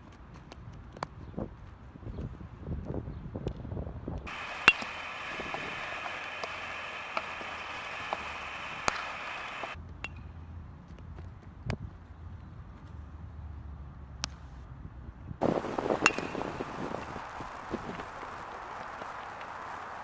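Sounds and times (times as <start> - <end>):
baseball hitting glove or bat: 4.3 - 10.3, 15.5 - 17.2
steady outdoor hiss: 4.3 - 20.0.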